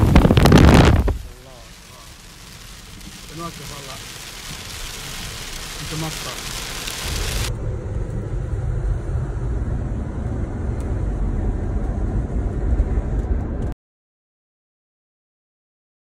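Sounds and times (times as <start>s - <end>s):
rain hissing on glass: 0.0s - 7.5s
road and wind rumble: 0.0s - 13.8s.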